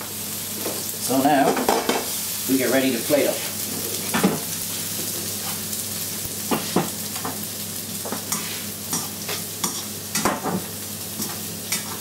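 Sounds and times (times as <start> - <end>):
noodles sizzling in a wok: 0.0 - 12.0
utensil knocking and scraping wok: 0.6 - 2.1, 6.4 - 7.4, 8.0 - 12.0.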